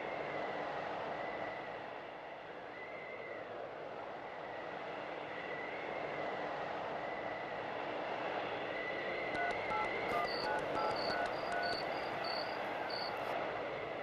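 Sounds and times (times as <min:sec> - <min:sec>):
short electronic beeps: 0:09.4 - 0:13.3.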